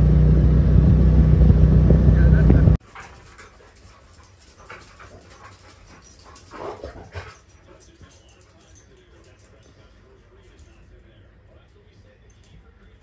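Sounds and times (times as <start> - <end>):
dogs play-wrestling noises: 2.8 - 10.7.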